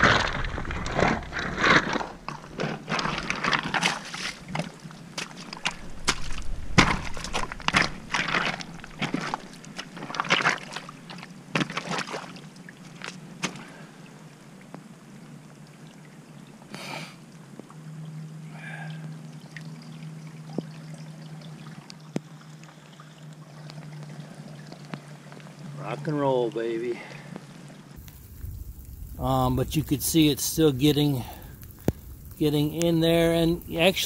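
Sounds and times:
boot scraping rocks and mud: 0:00.0 - 0:12.3
water trickling into pipe: 0:13.6 - 0:34.0.

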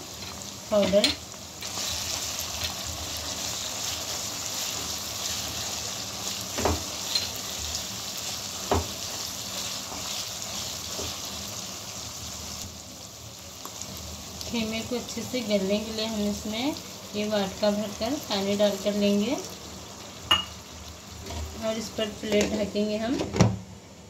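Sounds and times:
minced meat sizzling in wok: 0:00.0 - 0:23.2
spatula knocking on pan: 0:08.6 - 0:09.0.

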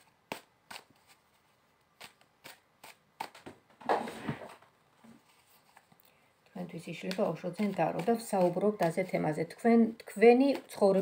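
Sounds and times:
cards rustling: 0:00.0 - 0:04.4, 0:05.1 - 0:09.3
cards slapping together: 0:02.0 - 0:04.1.

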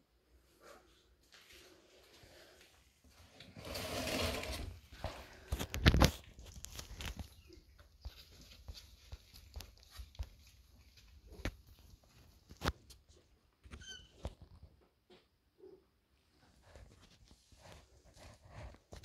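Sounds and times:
kitten rustling in cardboard box: 0:03.4 - 0:12.7, 0:16.4 - 0:19.0
small scratches and taps: 0:05.0 - 0:15.3.

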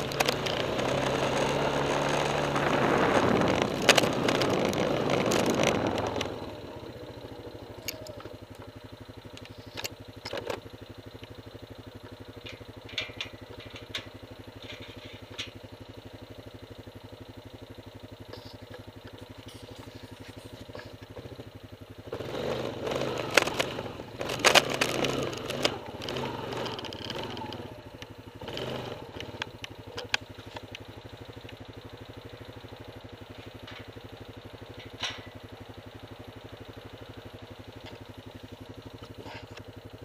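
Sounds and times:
sharp clicks and knocks: 0:00.0 - 0:01.2, 0:03.5 - 0:06.3, 0:12.0 - 0:15.6, 0:23.1 - 0:30.8, 0:34.7 - 0:35.4
quad engine running and idling: 0:00.0 - 0:40.0.

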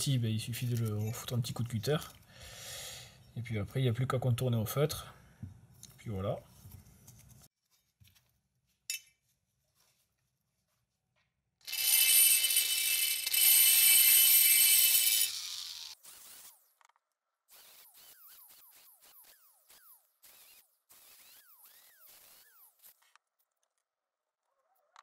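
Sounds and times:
rotary tool grinding whine: 0:11.6 - 0:23.2.

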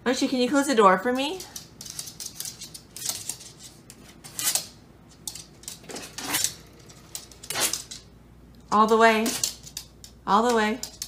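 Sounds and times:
dog claws tapping on wood floor: 0:01.1 - 0:08.1, 0:09.2 - 0:11.0.

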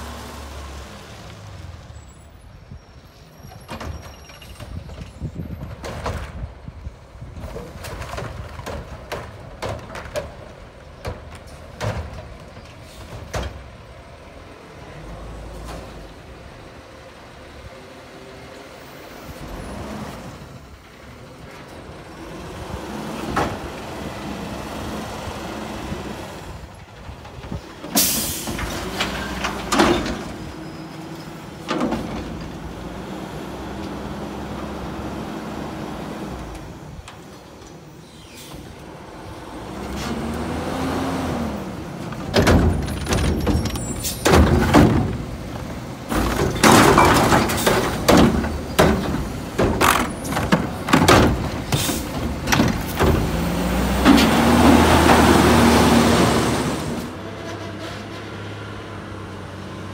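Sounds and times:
garbage truck diesel engine: 0:00.0 - 0:59.9
metal clanks and knocks: 0:07.4 - 0:13.7, 0:42.0 - 0:55.4.

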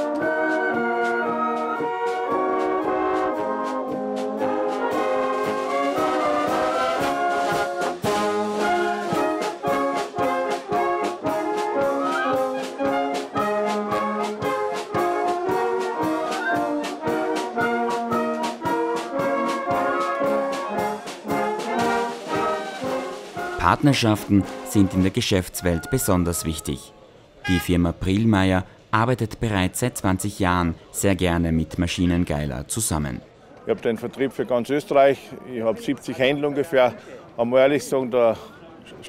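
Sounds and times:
brass wind band playing: 0:00.0 - 0:26.6, 0:27.4 - 0:28.0.

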